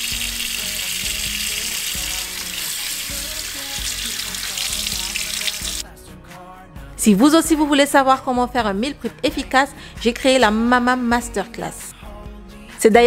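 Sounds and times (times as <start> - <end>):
tap water running into a sink: 0.0 - 5.8
soft background music: 0.0 - 13.0.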